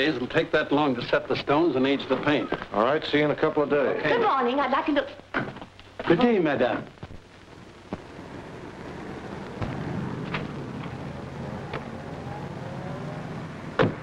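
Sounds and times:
street traffic rumble: 0:07.2 - 0:14.0.

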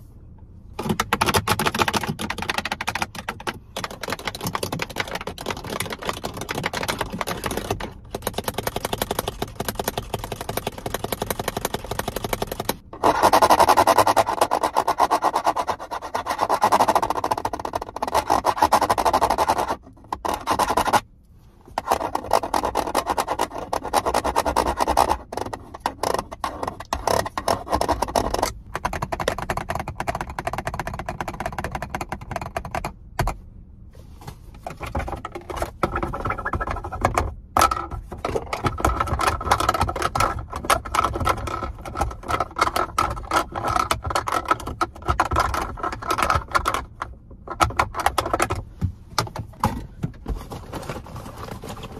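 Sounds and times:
fingernails scratching and tapping: 0:00.8 - 0:21.0, 0:21.8 - 0:33.4, 0:34.6 - 0:49.7.

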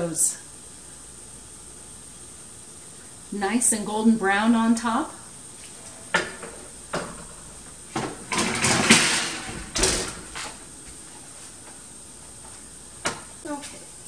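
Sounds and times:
oven door banging shut: 0:06.1 - 0:10.7.

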